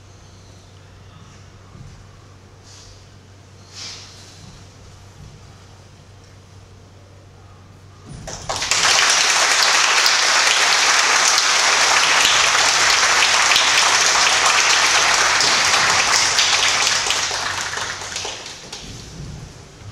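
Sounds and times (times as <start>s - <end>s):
audience applauding: 8.2s - 19.1s.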